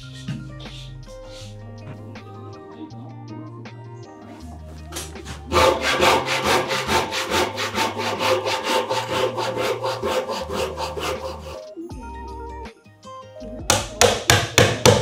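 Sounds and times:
handsaw cutting wood: 0:04.9 - 0:11.7.

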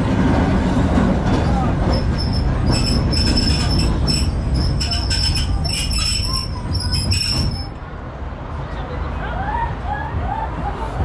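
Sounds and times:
tram running rumble: 0:00.0 - 0:11.0
tram wheels squealing: 0:01.2 - 0:07.8.

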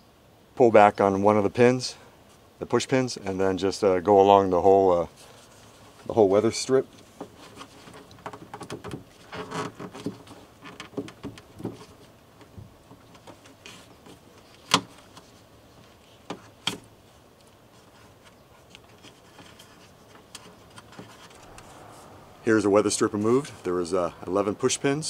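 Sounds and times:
rubber strip rustling and scraping: 0:05.1 - 0:12.2, 0:13.2 - 0:22.2.

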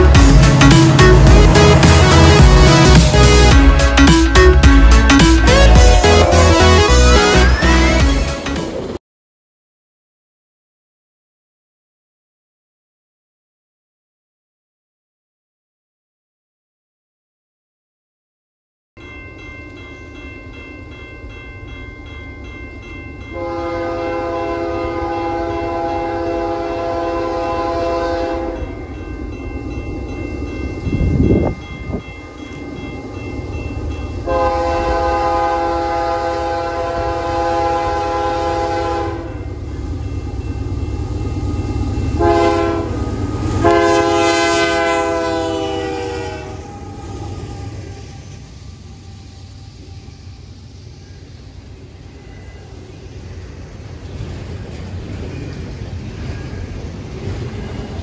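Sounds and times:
train rumbling: 0:00.0 - 0:09.0, 0:19.0 - 0:58.0
locomotive air horn blasts: 0:05.4 - 0:08.0, 0:23.4 - 0:28.6, 0:34.2 - 0:39.5, 0:42.1 - 0:48.4.

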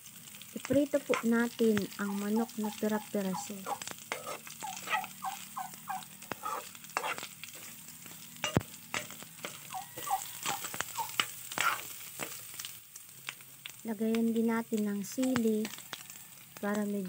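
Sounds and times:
chicken sizzling in a wok: 0:00.0 - 0:17.0
spatula scraping and clacking on pan: 0:00.6 - 0:12.7.

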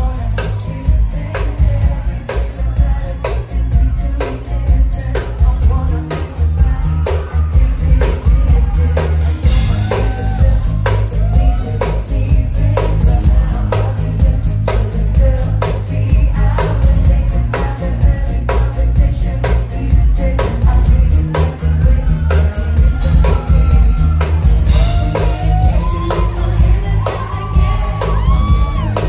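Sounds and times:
heavy bass: 0:00.0 - 0:29.0
live pop band playing: 0:00.0 - 0:29.0
woman singing lead vocal: 0:00.0 - 0:29.0.

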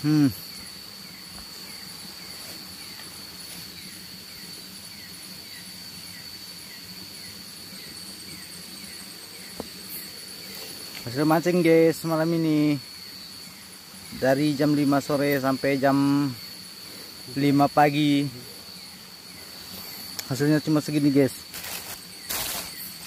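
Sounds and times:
insects trilling: 0:00.0 - 0:23.0
short falling insect chirps: 0:21.4 - 0:23.0.

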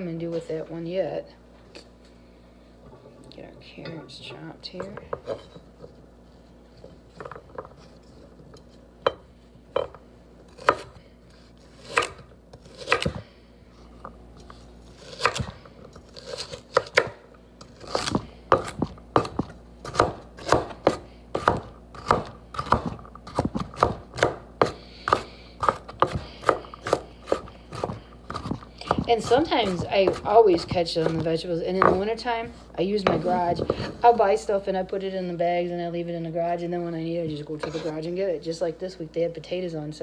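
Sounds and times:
knife chopping on wooden board: 0:09.8 - 0:10.9, 0:11.8 - 0:13.2, 0:15.0 - 0:17.2, 0:17.8 - 0:32.1.

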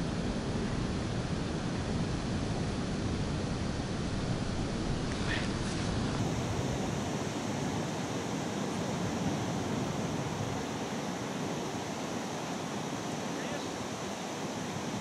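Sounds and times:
wind on microphone: 0:00.0 - 0:13.3.

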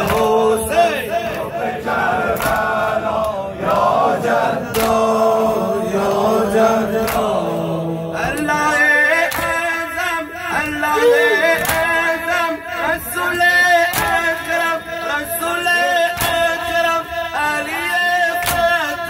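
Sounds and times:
crowd of men chanting: 0:00.0 - 0:19.0
reciter on a microphone: 0:00.0 - 0:19.0
chest beating slaps: 0:02.3 - 0:03.4, 0:04.7 - 0:05.1, 0:07.0 - 0:07.4, 0:09.3 - 0:09.6, 0:11.6 - 0:12.0.

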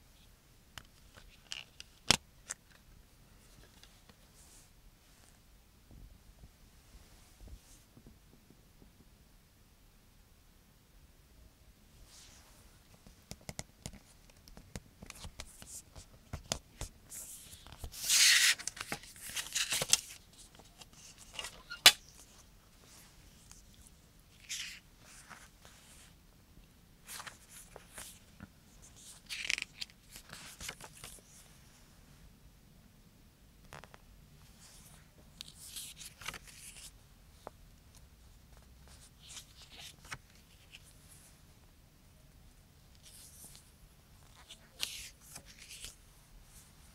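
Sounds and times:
paper pages rustling: 0:13.3 - 0:26.1, 0:27.0 - 0:31.4, 0:34.6 - 0:37.6, 0:38.5 - 0:41.2, 0:42.9 - 0:46.7
paper crackling: 0:35.4 - 0:36.9, 0:44.2 - 0:46.0
paper booklet scraping: 0:44.3 - 0:46.0.

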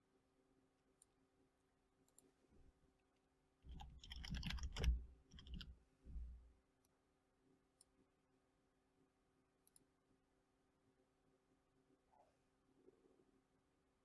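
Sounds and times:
computer keyboard typing: 0:03.7 - 0:05.8.

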